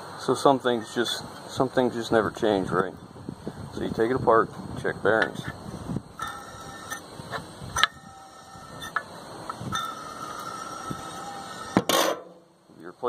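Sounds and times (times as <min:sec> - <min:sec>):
pulley bearing whine: 0:05.2 - 0:12.6.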